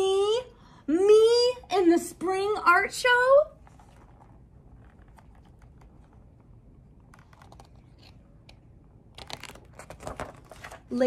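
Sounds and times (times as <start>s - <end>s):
fingers clicking on book cover: 7.1s - 8.6s, 9.2s - 10.8s.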